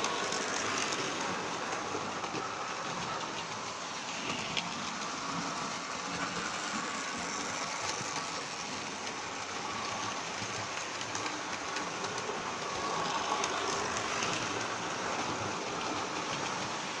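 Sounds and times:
model tram running on track: 0.0 - 17.0.

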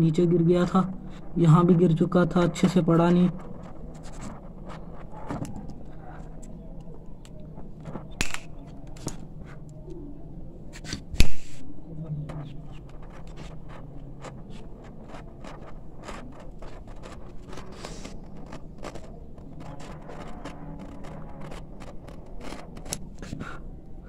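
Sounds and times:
lighter clicks and scrapes: 6.4 - 9.2, 10.8 - 11.7.

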